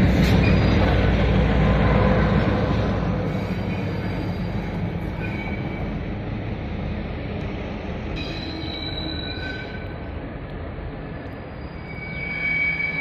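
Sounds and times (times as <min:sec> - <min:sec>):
locomotive engine and rail rumble: 0:00.0 - 0:13.0
metallic wheel squeal: 0:00.3 - 0:00.9, 0:03.3 - 0:05.9, 0:08.2 - 0:10.0, 0:11.4 - 0:13.0.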